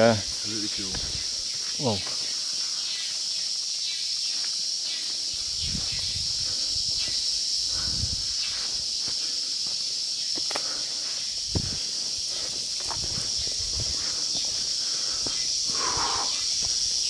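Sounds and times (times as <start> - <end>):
insects droning: 0.0 - 17.0
footsteps thudding: 0.9 - 1.2, 11.5 - 14.6.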